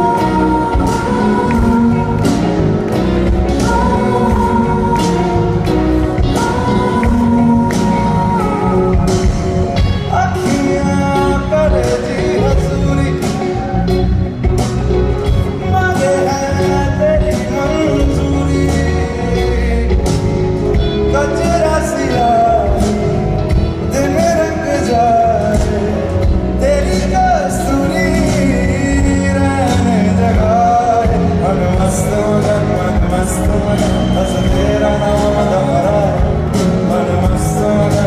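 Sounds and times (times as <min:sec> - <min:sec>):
drums: 0:00.0 - 0:38.0
guitars: 0:00.0 - 0:38.0
live band playing: 0:00.0 - 0:38.0.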